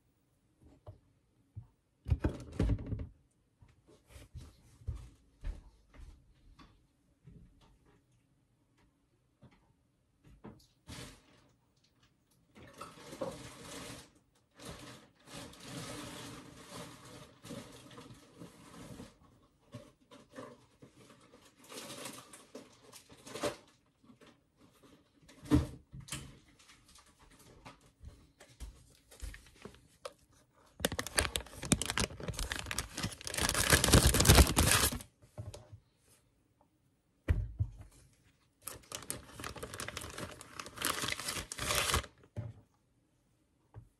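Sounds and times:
plastic bag crinkling: 29.4s - 35.1s, 38.6s - 42.2s.

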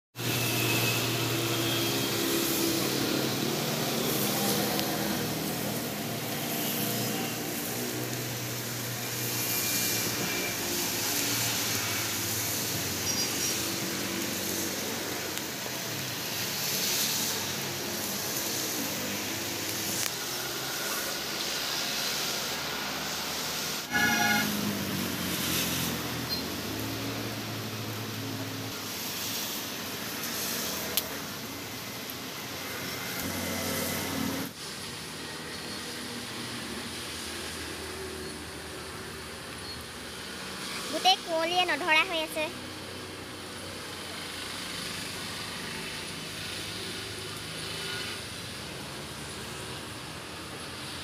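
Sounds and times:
passing traffic engines hum: 0.2s - 51.0s
steady hiss: 0.2s - 51.0s
brief high-pitched tone: 23.9s - 24.5s.

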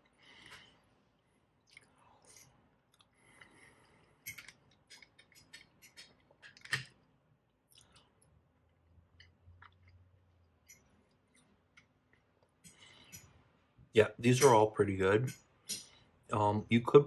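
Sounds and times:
person chewing: 1.5s - 6.8s, 7.5s - 13.3s.

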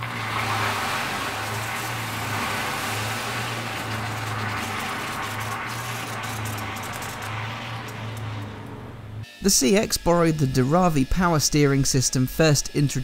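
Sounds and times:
water pouring into glass bowl: 0.0s - 8.6s
low hum: 0.0s - 9.2s.

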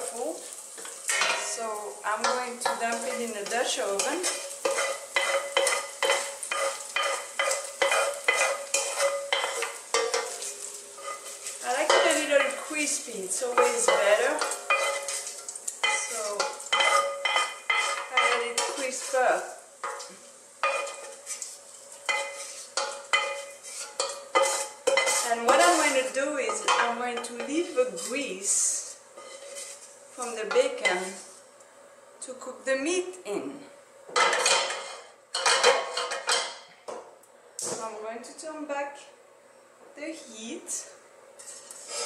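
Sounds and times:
bacon fat sizzling: 0.0s - 31.6s
metal utensil scraping a pan: 0.4s - 31.3s, 34.2s - 36.7s, 41.4s - 42.0s.

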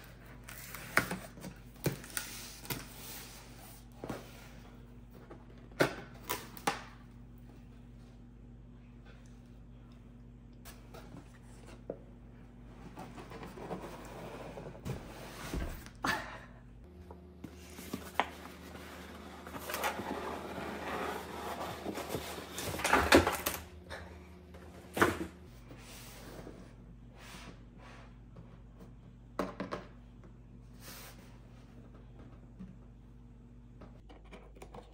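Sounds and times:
cardboard scraping and rustling: 17.5s - 23.5s.

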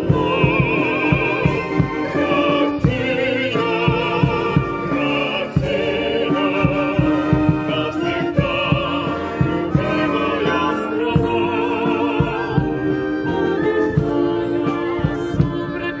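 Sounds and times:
steady low beat: 0.0s - 15.8s
mixed choir singing: 0.0s - 16.0s
wind band playing: 0.0s - 16.0s.

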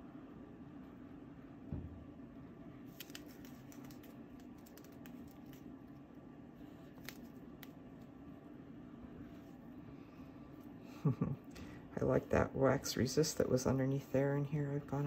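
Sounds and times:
steady low hum: 0.0s - 15.0s
soft thump: 1.7s - 2.0s.

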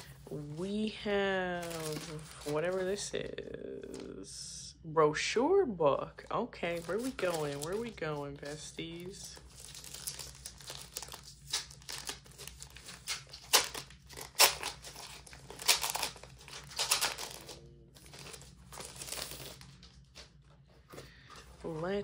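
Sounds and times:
plastic sleeve crinkling: 1.4s - 3.0s, 6.6s - 22.0s.

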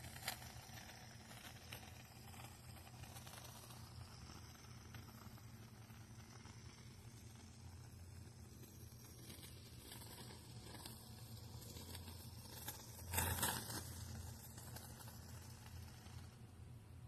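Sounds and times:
steady low hum: 0.0s - 17.0s
stick scraping foam: 8.6s - 16.4s.

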